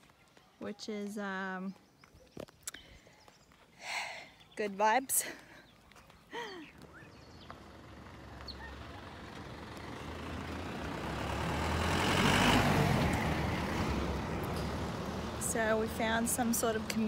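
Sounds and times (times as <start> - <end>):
pickup truck driving past: 7.0 - 17.0.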